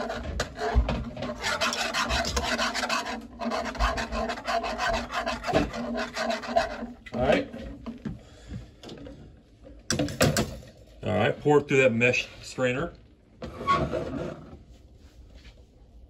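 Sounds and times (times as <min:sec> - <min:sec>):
wire whisk scraping metal pan: 0:00.0 - 0:07.0.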